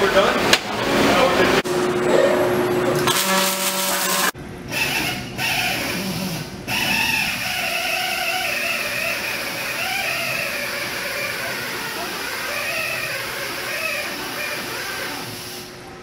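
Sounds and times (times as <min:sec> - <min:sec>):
arc welding buzzing and crackling: 0:01.7 - 0:05.1.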